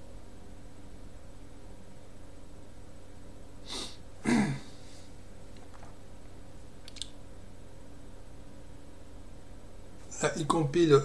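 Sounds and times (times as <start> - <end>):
steady low hum: 0.0 - 11.0
man sniffing: 3.6 - 5.1
man snorting: 3.6 - 5.1
faint click: 6.8 - 7.2.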